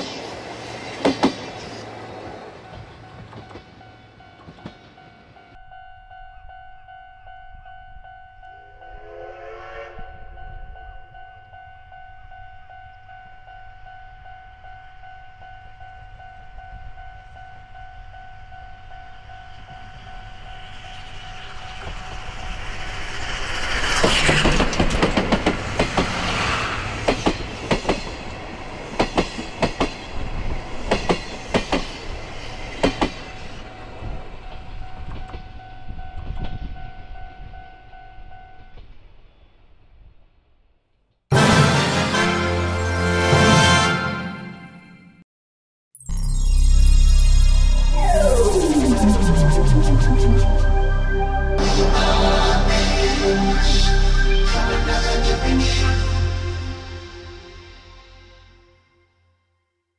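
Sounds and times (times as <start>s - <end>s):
train running noise: 0.0s - 5.6s, 15.7s - 38.8s
steam locomotive whistle: 8.8s - 10.3s, 41.3s - 44.6s.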